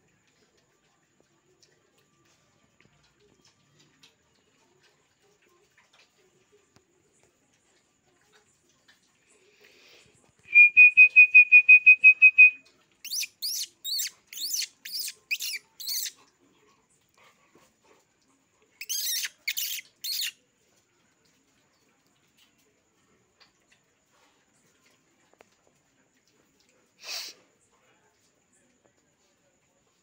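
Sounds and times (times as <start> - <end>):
short high chirps: 10.5 - 16.1.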